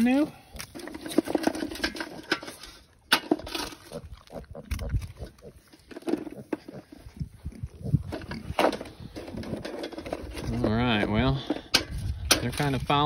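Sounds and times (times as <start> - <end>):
pigs grunting: 3.5 - 9.4.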